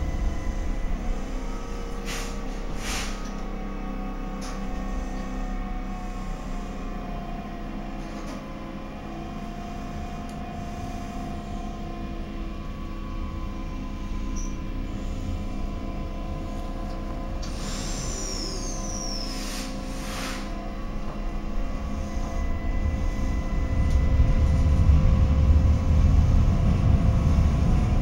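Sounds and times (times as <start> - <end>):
train equipment humming: 0.0 - 28.0
hiss with falling whistle: 17.6 - 20.5.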